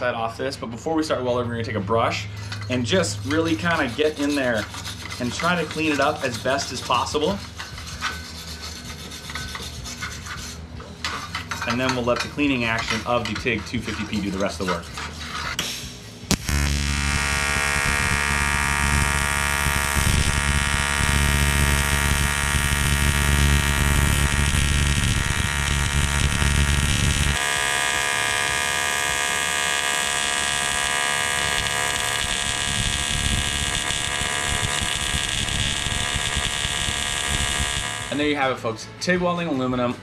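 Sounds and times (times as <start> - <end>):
welding arc buzzing: 16.3 - 38.2.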